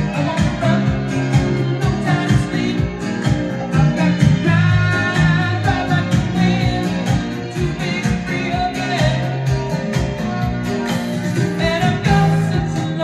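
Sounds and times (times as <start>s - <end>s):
song with singing and guitar: 0.0s - 13.0s.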